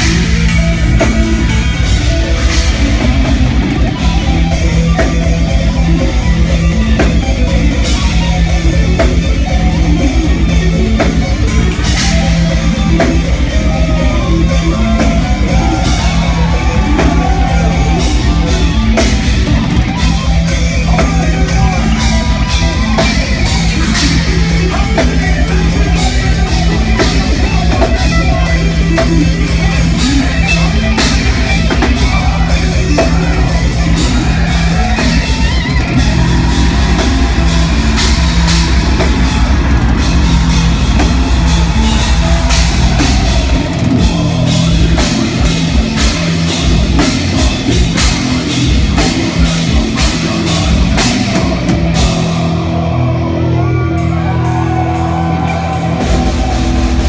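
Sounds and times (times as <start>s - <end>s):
lead guitar melody: 0.0s - 57.0s
metal band playing live: 0.0s - 57.0s
rapid kick drum: 31.2s - 52.2s.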